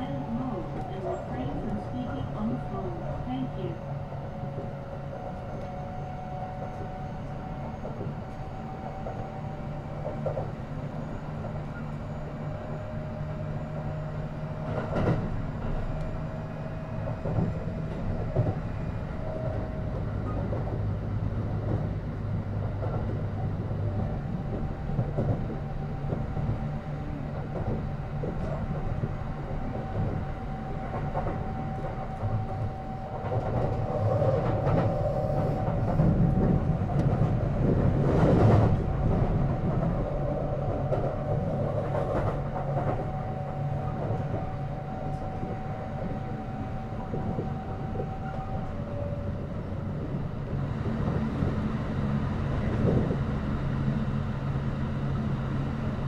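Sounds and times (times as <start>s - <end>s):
train wheels rumbling on rail: 0.0s - 56.0s
rail-joint clicks: 14.6s - 16.2s, 27.3s - 51.6s.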